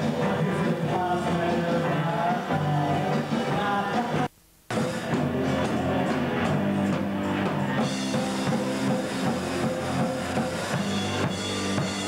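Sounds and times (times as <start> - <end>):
person singing: 0.0 - 4.4
live rock band playing: 0.0 - 12.0.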